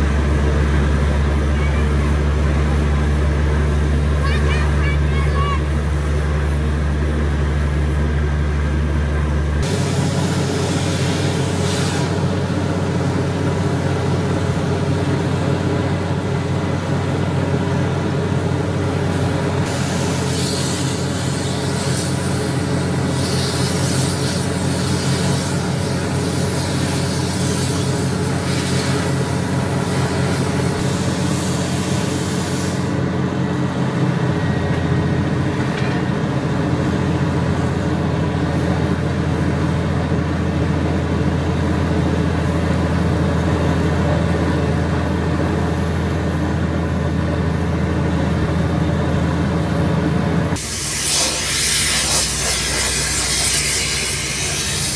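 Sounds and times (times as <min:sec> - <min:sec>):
drilling rig engine drone: 0:00.0 - 0:54.9
hiss: 0:09.6 - 0:12.5, 0:19.6 - 0:33.0, 0:50.6 - 0:54.9.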